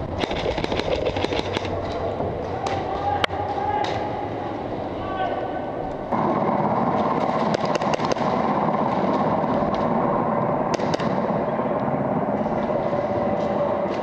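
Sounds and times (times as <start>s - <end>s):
airsoft guns firing: 0.1s - 1.8s, 6.1s - 11.6s.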